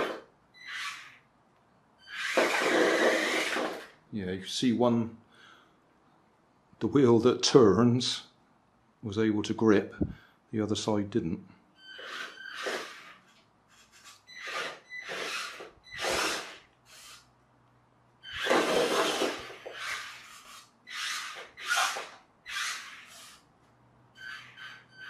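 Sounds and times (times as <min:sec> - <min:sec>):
toy car motor whirring: 0:00.0 - 0:01.3, 0:02.1 - 0:04.0, 0:11.9 - 0:17.3, 0:18.3 - 0:23.4.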